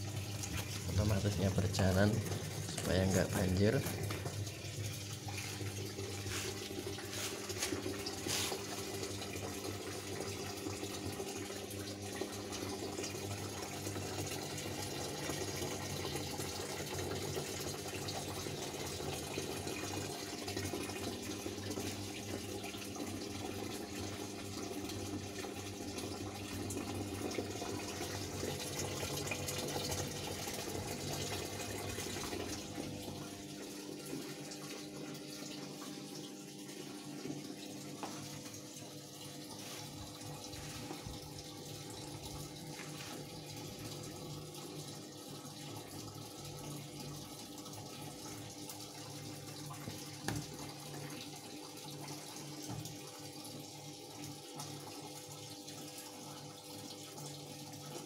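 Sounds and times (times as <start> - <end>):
steady electrical hum: 0.0 - 14.5
water filling washing machine tub: 0.0 - 58.0.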